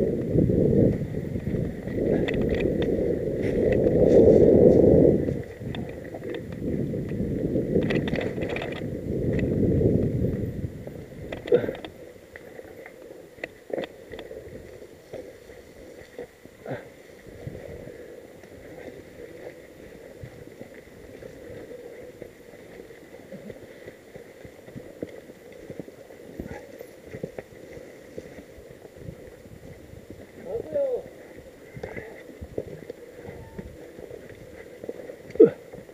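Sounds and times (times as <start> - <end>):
wind and tyre rumble: 0.0 - 35.9
bike clicks and knocks: 7.8 - 9.5.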